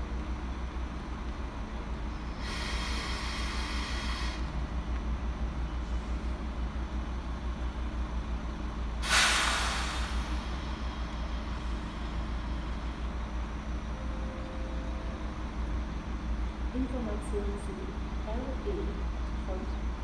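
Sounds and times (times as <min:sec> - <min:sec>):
train low hum: 0:00.0 - 0:20.0
compressed air hiss: 0:02.4 - 0:04.5, 0:09.0 - 0:10.5.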